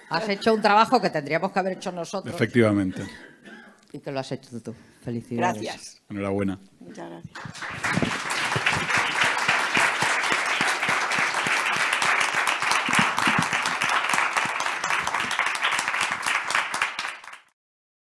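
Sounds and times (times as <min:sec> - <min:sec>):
audience applauding: 0:07.3 - 0:17.6.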